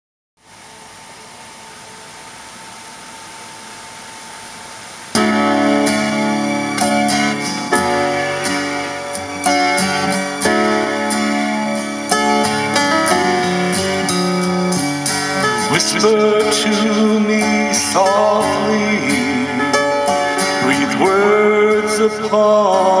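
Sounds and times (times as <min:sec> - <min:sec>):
steady hiss: 0:00.4 - 0:23.0
plucked guitar chords with keyboard: 0:05.1 - 0:23.0.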